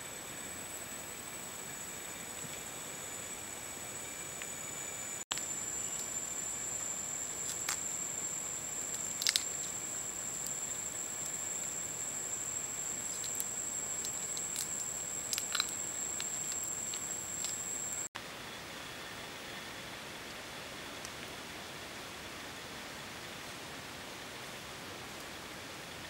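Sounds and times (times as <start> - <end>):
high-pitched whine: 0.0 - 20.1
steady hiss: 0.0 - 26.0
fire clicks and pops: 8.9 - 11.8, 12.9 - 18.1.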